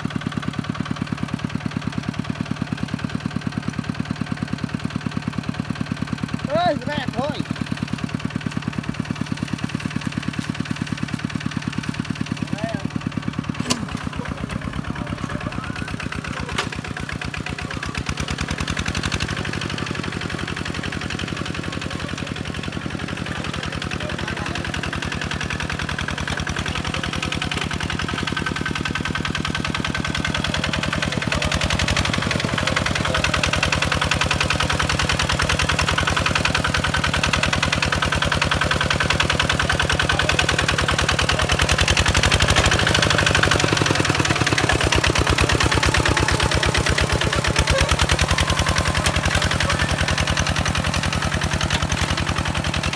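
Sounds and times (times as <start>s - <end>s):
diesel tractor engine chugging: 0.0s - 52.9s.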